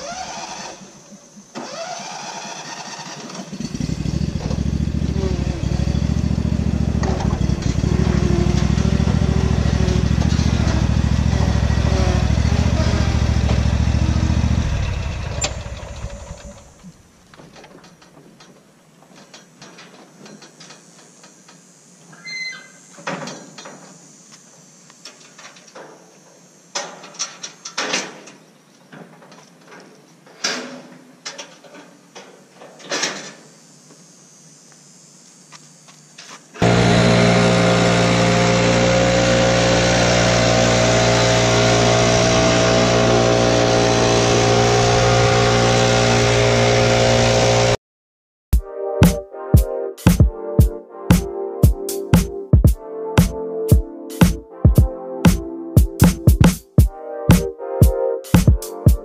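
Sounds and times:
riding mower engine running: 0.0 - 17.0, 36.6 - 47.8.

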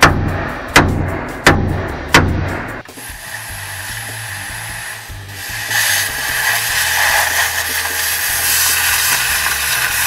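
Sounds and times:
plasma cutter hissing: 2.8 - 10.0.

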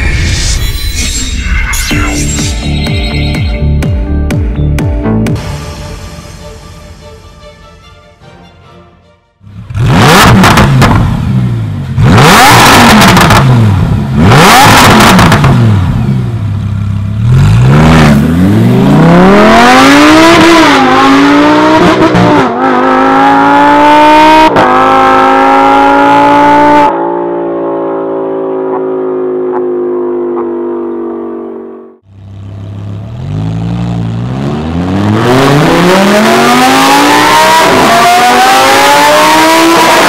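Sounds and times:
sports car engine revving: 9.4 - 40.0
car accelerating through gears: 9.7 - 11.4, 17.2 - 31.8, 33.1 - 40.0.

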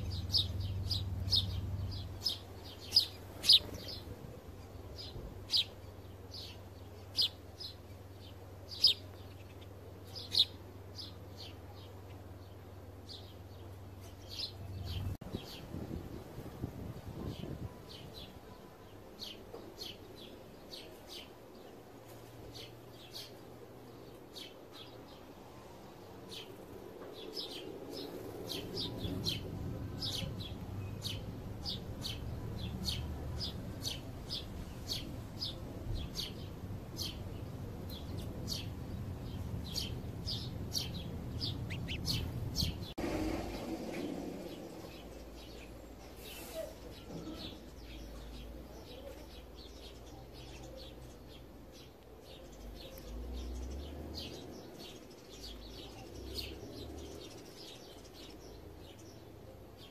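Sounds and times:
low background rumble: 0.0 - 18.6, 25.6 - 46.2
sparrows chirping: 0.0 - 59.9.

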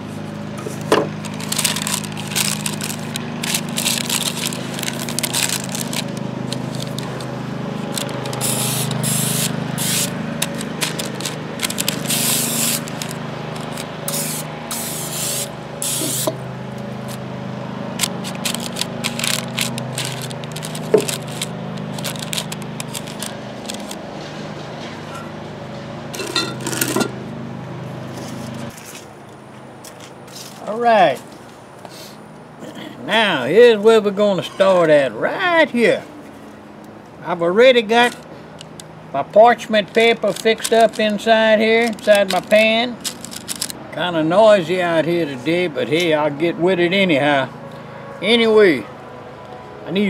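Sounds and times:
low mechanical drone: 0.0 - 30.6, 36.1 - 50.0
parchment paper crinkling: 0.7 - 16.2, 18.0 - 24.0, 39.6 - 43.8
cooking spray hissing: 8.3 - 10.2, 12.0 - 12.9, 14.1 - 16.4.

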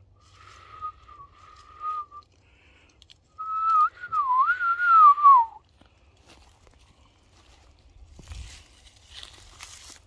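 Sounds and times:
person whistling: 0.6 - 2.3, 3.4 - 5.6.

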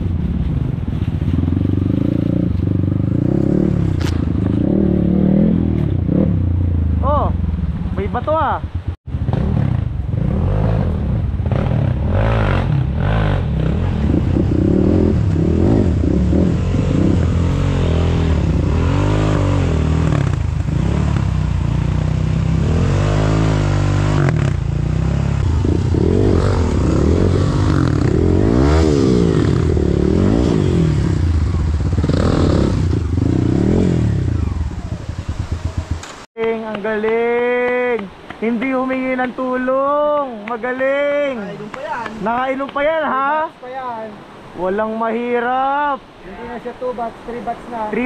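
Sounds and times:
engine revving: 1.4 - 7.2, 9.2 - 36.3.

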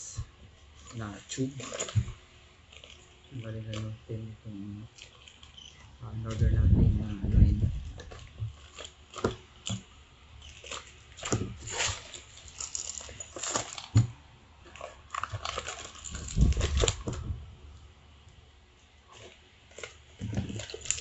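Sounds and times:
plastic bag crinkling and tearing: 0.7 - 4.0, 4.8 - 6.5, 7.8 - 17.4, 19.1 - 21.0.

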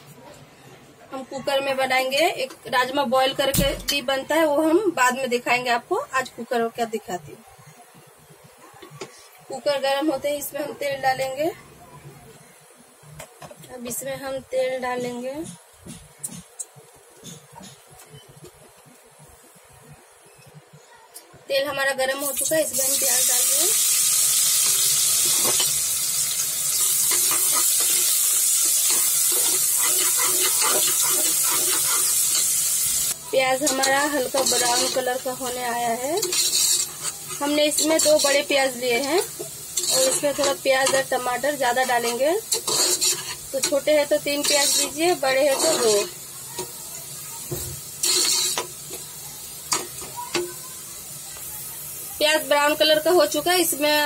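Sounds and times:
onions sizzling in hot oil: 21.5 - 54.0
metal spoon scraping a pot: 26.7 - 41.2, 41.9 - 46.2, 48.0 - 48.7.

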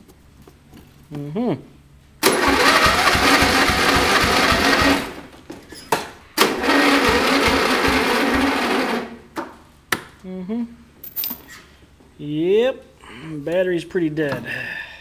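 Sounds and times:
electric starter cranking engine: 2.2 - 5.3, 6.4 - 9.2.

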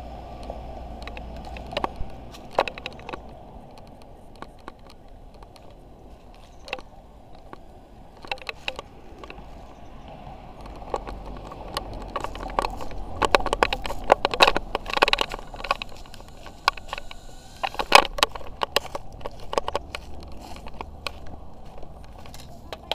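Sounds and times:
footsteps crunching on dry leaves: 0.0 - 4.1, 5.2 - 22.9
faint quadcopter motor whine: 16.0 - 18.0.

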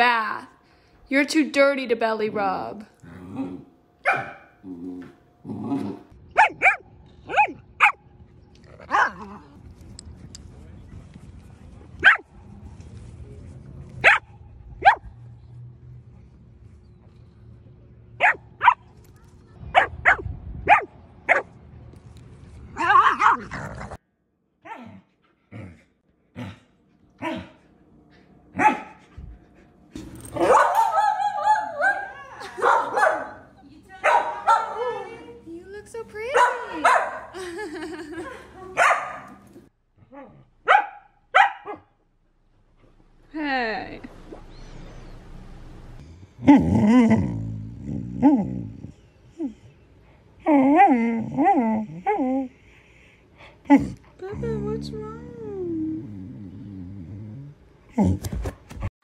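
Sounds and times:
dog grumbling: 3.0 - 3.8, 46.4 - 49.0, 53.7 - 58.4
dog barking: 4.0 - 4.5, 6.4 - 8.0, 8.9 - 9.2, 12.0 - 12.3, 14.0 - 15.1, 18.2 - 18.8, 19.8 - 21.5, 28.6 - 29.0, 30.4 - 35.0, 36.3 - 37.3, 38.8 - 39.4, 40.6 - 41.9.

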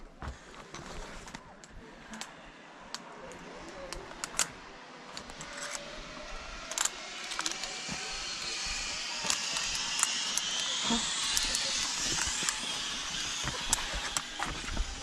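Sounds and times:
sharp clicks: 2.9 - 5.9, 6.7 - 15.0
pulley whirring along cable: 3.6 - 15.0.

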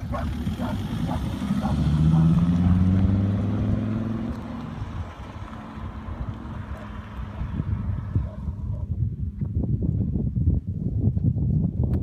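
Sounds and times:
car exhaust accelerating away: 0.0 - 8.1.

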